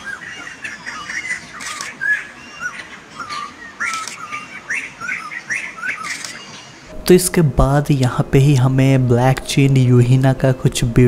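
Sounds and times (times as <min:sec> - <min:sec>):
harsh bird squawks: 0:00.0 - 0:06.9
birds calling: 0:00.0 - 0:07.3.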